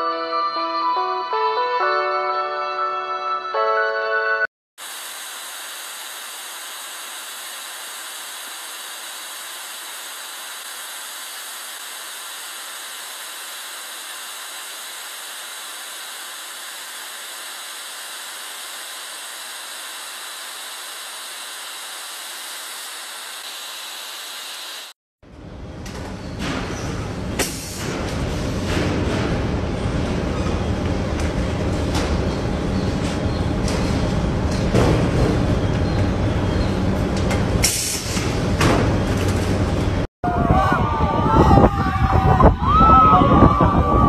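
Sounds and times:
blowtorch flame hissing: 0:04.8 - 0:25.0.

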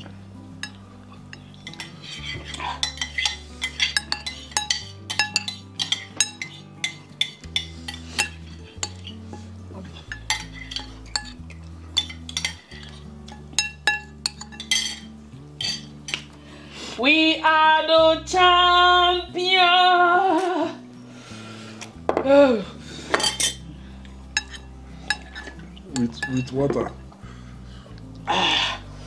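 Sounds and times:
background music with bass: 0:00.0 - 0:29.0
spoons clinking on ceramic bowls: 0:00.6 - 0:16.3, 0:23.1 - 0:23.6, 0:24.3 - 0:27.0.

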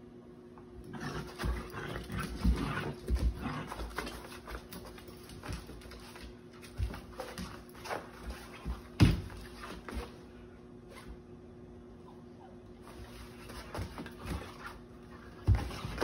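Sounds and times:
thumps of paws and bodies: 0:01.2 - 0:10.2, 0:12.9 - 0:16.0.

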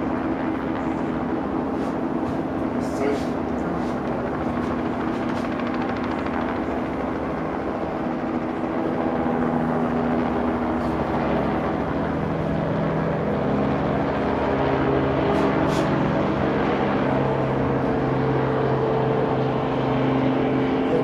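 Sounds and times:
steady engine drone: 0:00.0 - 0:21.0.

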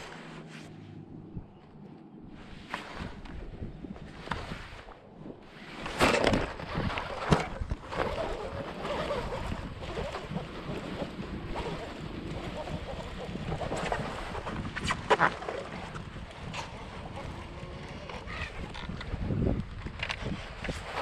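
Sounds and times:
water lapping against kayak: 0:00.0 - 0:21.0
wind buffeting microphone: 0:00.0 - 0:21.0.

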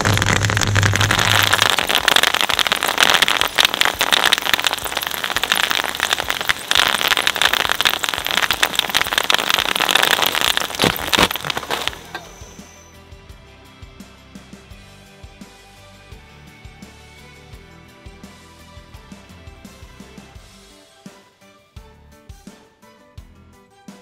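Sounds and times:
shredder popping bubble wrap: 0:00.0 - 0:12.8.

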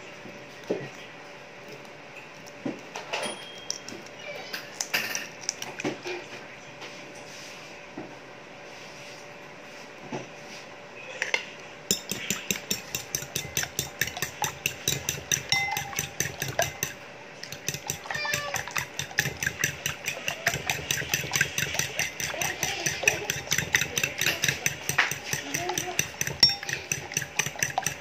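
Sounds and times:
fork beating eggs in bowl: 0:11.9 - 0:28.0.

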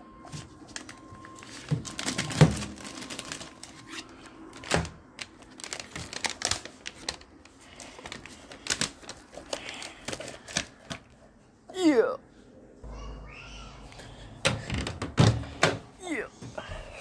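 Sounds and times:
paper bag crinkling: 0:00.7 - 0:11.1.

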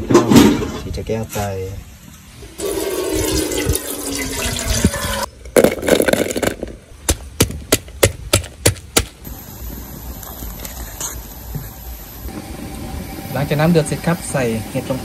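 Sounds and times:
liquid pouring into pot: 0:02.6 - 0:05.3
rustle: 0:06.2 - 0:12.5.

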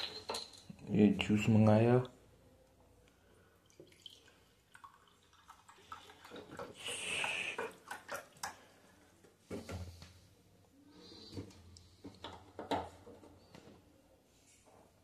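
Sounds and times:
juice pouring into a glass: 0:03.7 - 0:07.6.

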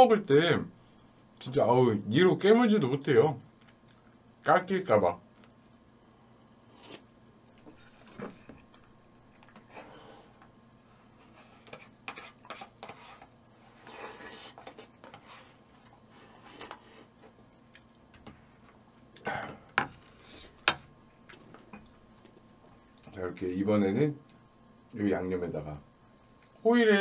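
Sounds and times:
metal spoon scraping plastic tub: 0:11.3 - 0:15.6.

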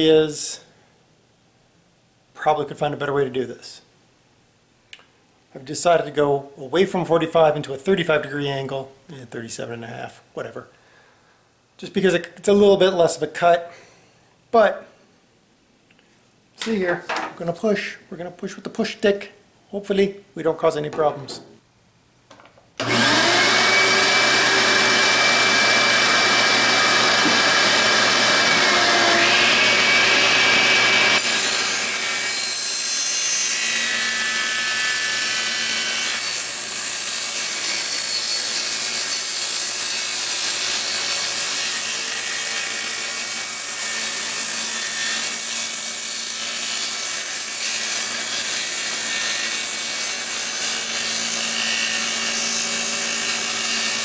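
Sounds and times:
saw blade cutting wood: 0:22.8 - 0:54.0
table saw motor whine: 0:22.8 - 0:54.0.

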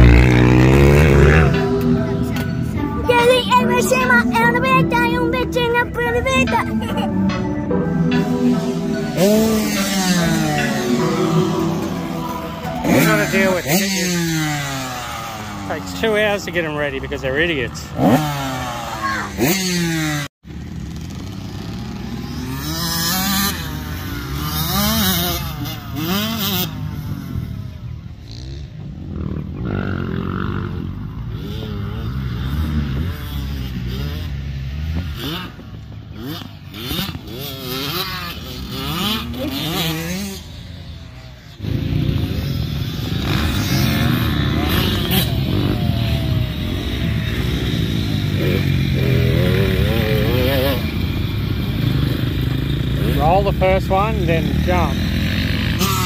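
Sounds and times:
dirt bike engines revving: 0:00.0 - 0:56.0
person's voice: 0:01.5 - 0:14.4, 0:53.0 - 0:55.0.

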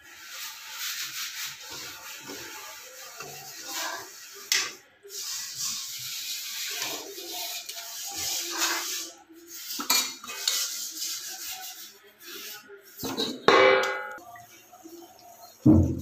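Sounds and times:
spoon scraping metal pot: 0:01.0 - 0:13.5.

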